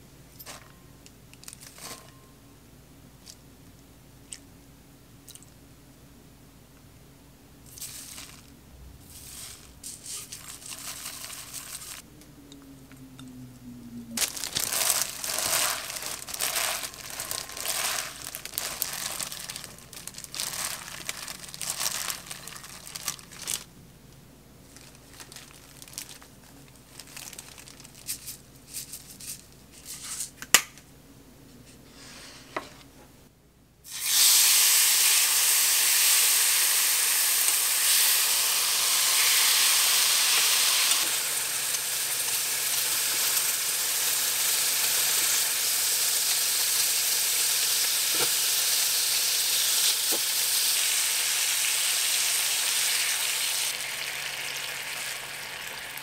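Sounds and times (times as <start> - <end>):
plastic glove crinkling: 1.4 - 2.0, 7.7 - 12.0, 14.2 - 23.7, 24.6 - 30.4
meat sizzling in a pan: 33.9 - 56.0.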